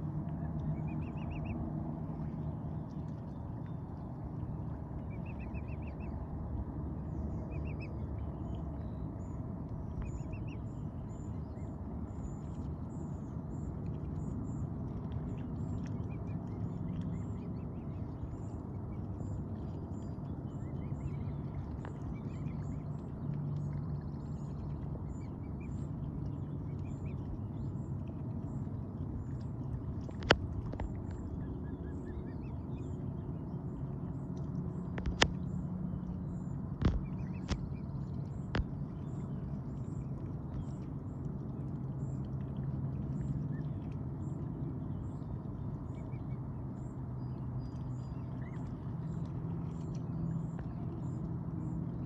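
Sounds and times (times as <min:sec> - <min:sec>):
steady low rumble: 0:00.0 - 0:52.0
cygnets peeping: 0:00.5 - 0:01.6, 0:36.8 - 0:39.2.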